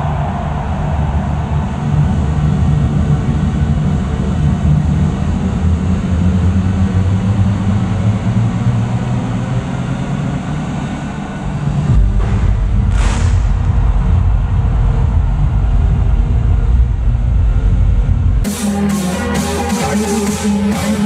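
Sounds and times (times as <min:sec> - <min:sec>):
low rumbling electronic drone: 0:00.0 - 0:21.0
deep bass hit: 0:11.7 - 0:21.0.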